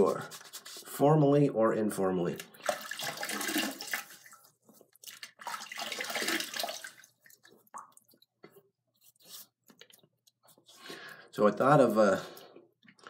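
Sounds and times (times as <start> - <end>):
water splashing in a sink: 2.4 - 8.5.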